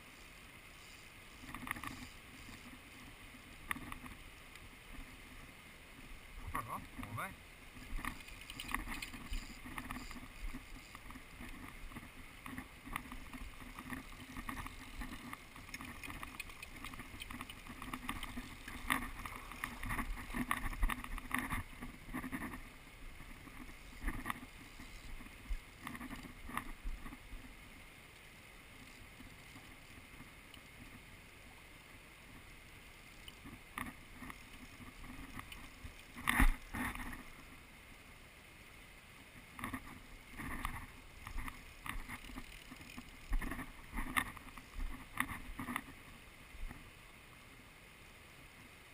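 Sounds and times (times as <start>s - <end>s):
river water rushing: 0.0s - 48.9s
fishing reel clicking: 41.6s - 44.3s.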